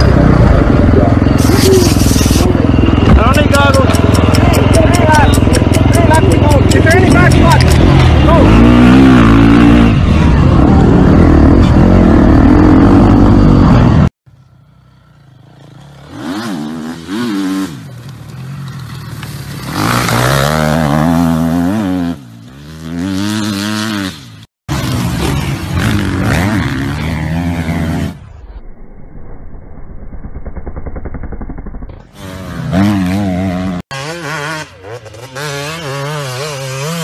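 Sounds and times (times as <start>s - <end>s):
dirt bike engine revving: 0.0s - 28.4s, 30.6s - 37.0s.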